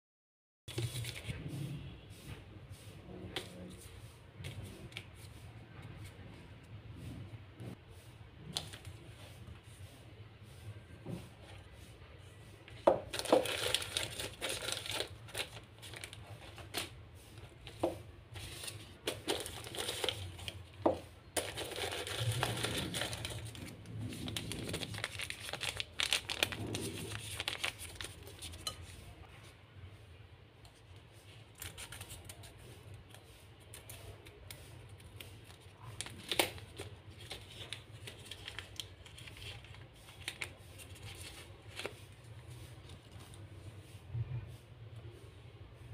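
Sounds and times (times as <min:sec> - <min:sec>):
paper crinkling and tearing: 0:13.0 - 0:28.7, 0:31.3 - 0:43.5.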